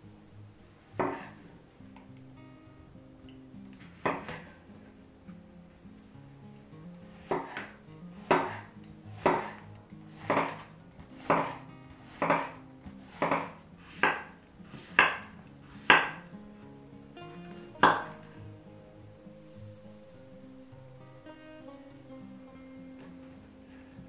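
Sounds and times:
knife slicing on wooden board: 1.0s - 1.4s, 7.2s - 16.2s.

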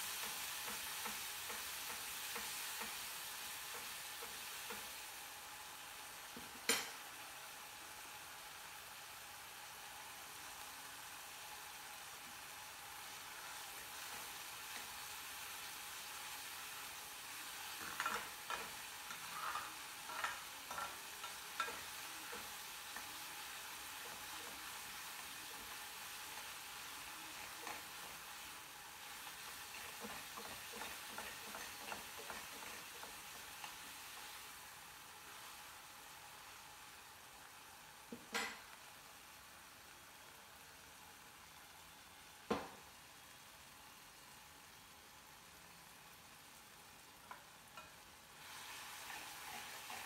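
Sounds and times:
vegetables sizzling in a pan: 0.0s - 50.0s
spatula scraping a pan: 17.7s - 23.0s, 29.2s - 33.8s, 47.8s - 50.0s.

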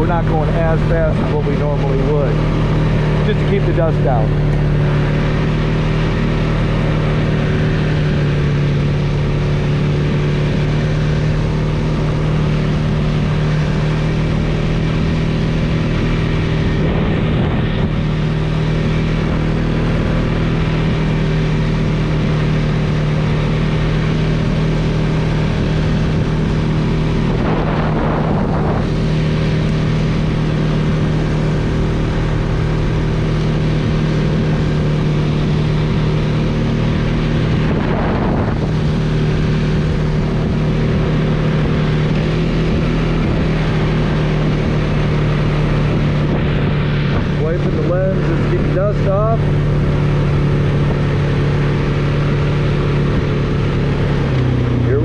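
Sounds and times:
atv engine droning: 0.0s - 55.0s.

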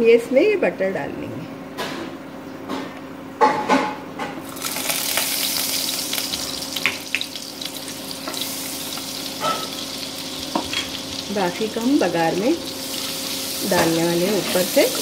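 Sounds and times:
butter sizzling in hot oil: 4.4s - 15.0s.

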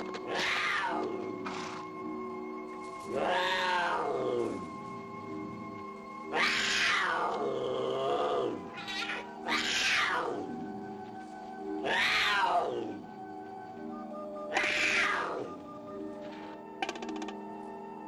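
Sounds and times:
mountain lion screaming: 0.0s - 1.8s, 3.1s - 4.6s, 6.3s - 10.6s, 11.6s - 13.0s, 14.4s - 15.6s
background music: 0.0s - 18.0s.

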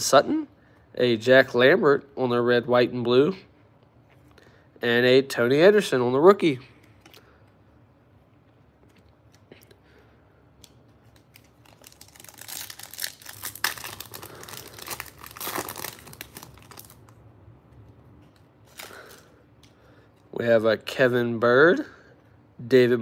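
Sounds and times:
foil wrapper tearing and crinkling: 11.1s - 17.2s.

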